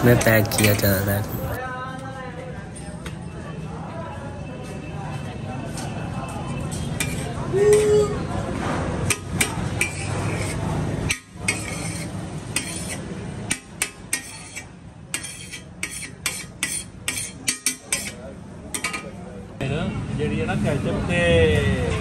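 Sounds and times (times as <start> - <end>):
metal spatula scraping griddle: 9.1 - 18.2.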